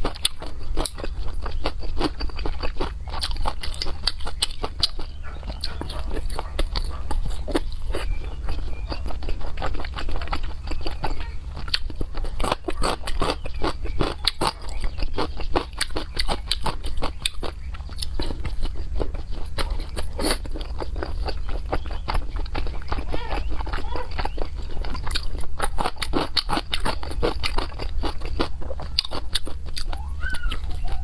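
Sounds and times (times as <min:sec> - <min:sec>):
wet chewing and mouth smacking: 0:00.0 - 0:31.0.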